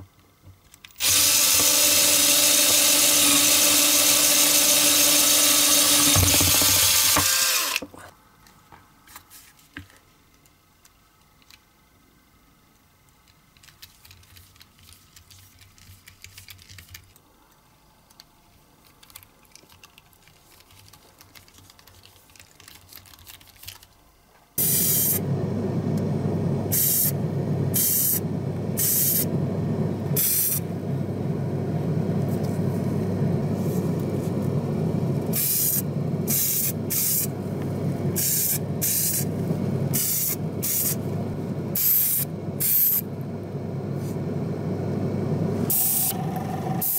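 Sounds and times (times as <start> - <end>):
spray paint hissing bursts: 24.6 - 25.2, 26.7 - 28.2, 28.8 - 29.3, 30.2 - 30.6, 35.3 - 37.3, 38.1 - 39.3, 39.9 - 41.1, 41.7 - 43.1, 45.7 - 46.2.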